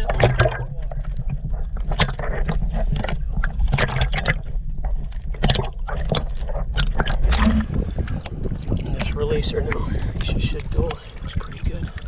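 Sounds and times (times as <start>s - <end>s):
low steady rumble: 0.0s - 12.0s
water sloshing and gurgling: 0.0s - 12.0s
small splashes: 5.4s - 8.3s.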